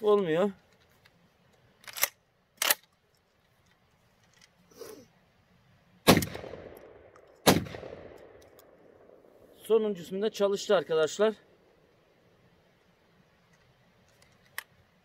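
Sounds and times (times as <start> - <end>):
shotgun shot with echo: 6.1 - 8.4.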